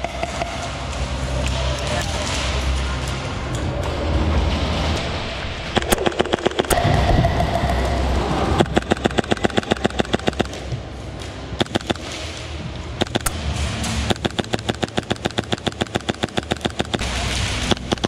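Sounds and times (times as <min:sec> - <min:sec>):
low rumble: 0:00.0 - 0:18.0
airsoft gun firing bursts: 0:05.8 - 0:06.8, 0:08.6 - 0:10.7, 0:11.6 - 0:12.2, 0:13.0 - 0:13.4, 0:14.0 - 0:18.0.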